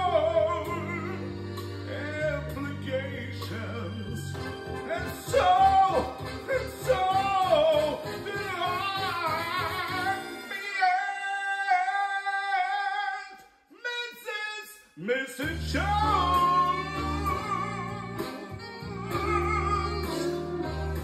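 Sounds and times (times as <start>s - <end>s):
person singing: 0.0s - 13.5s, 15.0s - 21.0s
backing track with pulsing bass: 15.5s - 21.0s.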